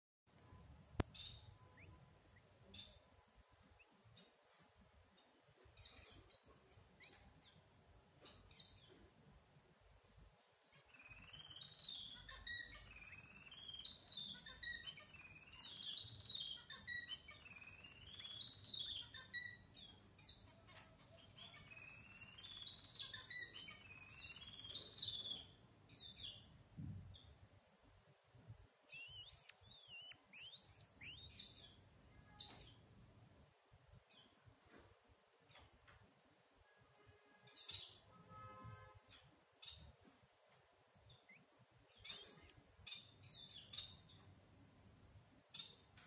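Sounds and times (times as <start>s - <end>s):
bird warbling twitter: 28.9s - 31.6s
high whistled bird notes: 28.9s - 31.6s.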